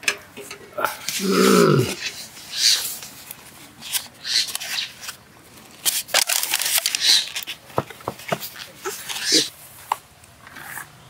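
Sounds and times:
foam lid squeaking and creaking: 5.9 - 7.6, 8.4 - 9.5.

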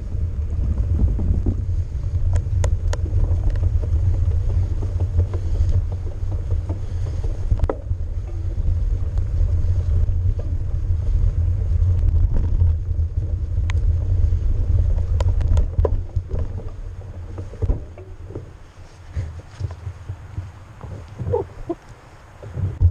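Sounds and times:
bike clicks and knocks: 0.0 - 22.9
tyres rolling on dirt: 0.0 - 22.9
wind buffeting microphone: 0.0 - 22.9.

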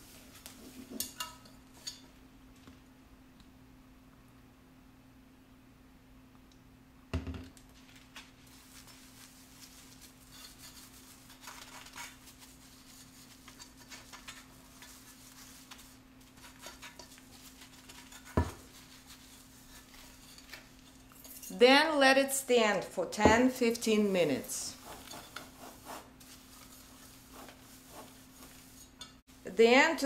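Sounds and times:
sponge scrubbing a steel pot: 8.5 - 21.5, 23.8 - 29.6.

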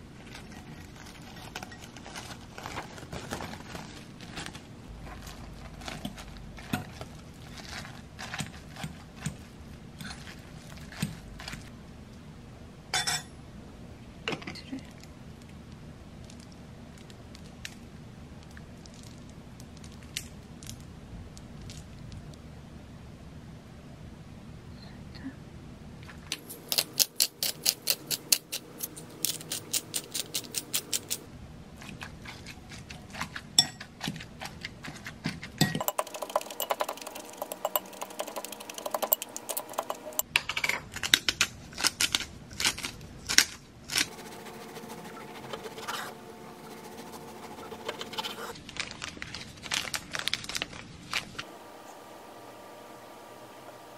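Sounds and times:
measuring spoon clinking on bowl: 35.6 - 40.2
fork scraping glass bowl: 35.7 - 40.2, 44.1 - 48.6.

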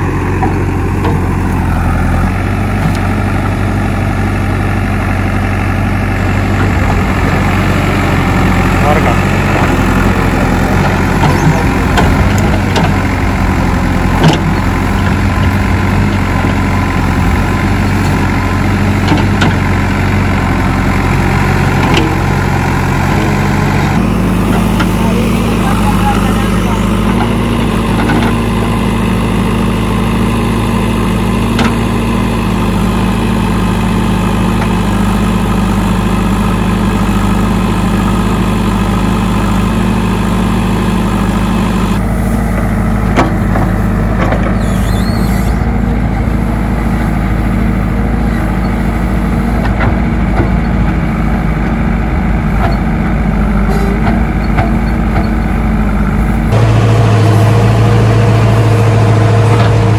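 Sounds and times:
diesel engine running: 0.0 - 59.9
backhoe arm digging: 6.3 - 20.3, 42.0 - 46.4.

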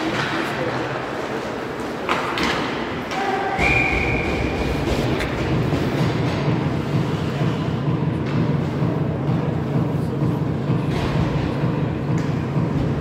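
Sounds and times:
referee's whistle blast: 3.5 - 4.5
faint regular beat: 4.4 - 13.0.

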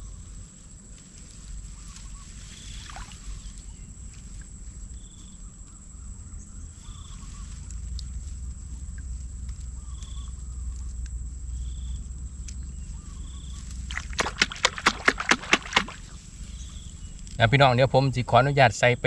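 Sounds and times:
low rumble: 3.2 - 14.4.

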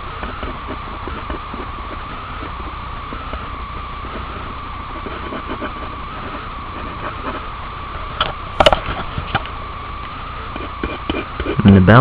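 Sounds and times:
pen scratching on paper: 0.2 - 2.5, 4.0 - 7.5, 10.5 - 11.7.

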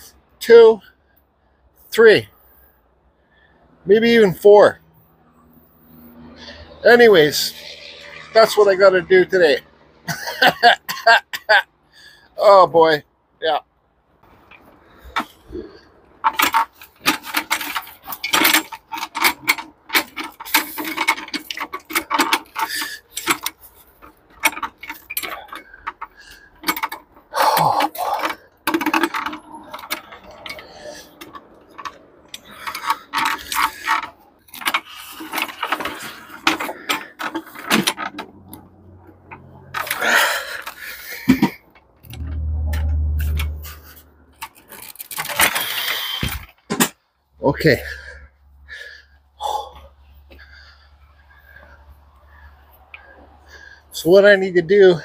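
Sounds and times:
metal hand truck rattling: 14.3 - 47.0.

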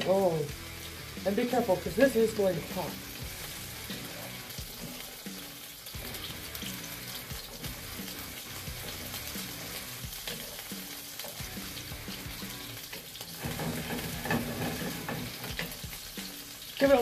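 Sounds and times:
mushrooms sizzling in a pan: 0.0 - 17.0
wooden spatula stirring: 13.0 - 16.0.

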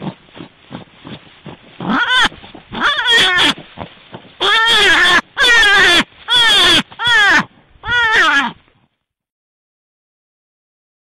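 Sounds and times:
rustling: 0.0 - 9.0
animal calls: 1.8 - 8.6.

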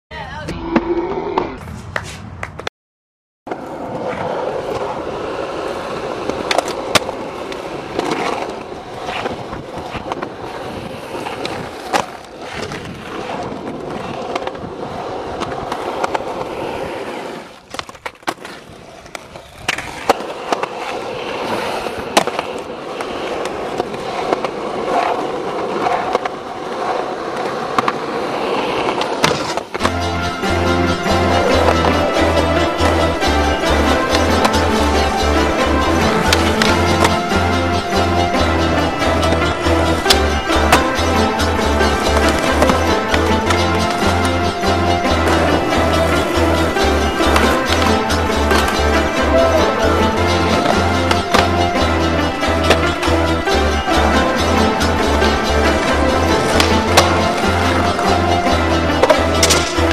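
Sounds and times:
skateboard wheels rolling on concrete: 0.1 - 2.7, 3.5 - 59.9
skateboard clacks: 3.5 - 30.0, 31.0 - 59.9
music with steady beat: 29.8 - 59.9.

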